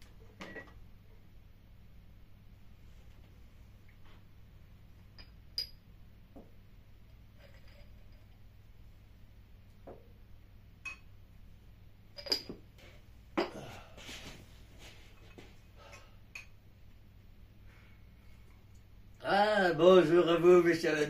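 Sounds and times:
china cup clinking: 5.2s - 5.8s.

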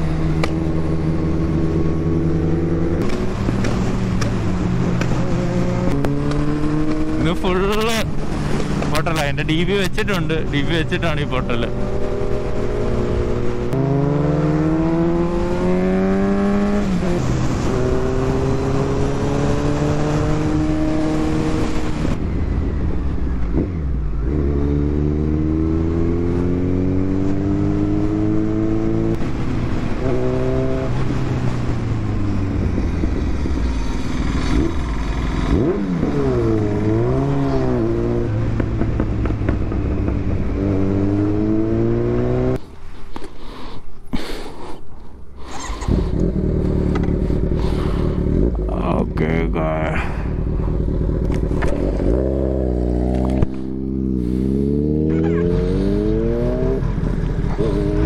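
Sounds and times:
motorcycle engine accelerating: 0.0s - 42.7s, 45.4s - 58.0s.

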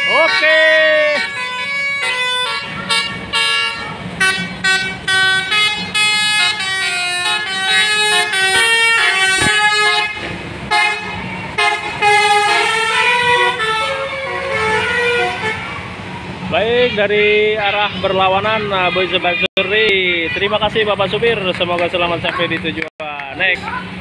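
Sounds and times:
musical bus horn melody: 0.0s - 15.8s
traffic rumbling: 0.0s - 24.0s.

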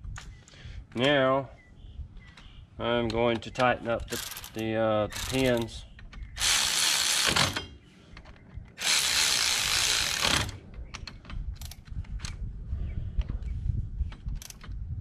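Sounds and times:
ratchet wrench clicking: 4.1s - 5.8s, 6.4s - 7.6s, 8.8s - 10.6s.

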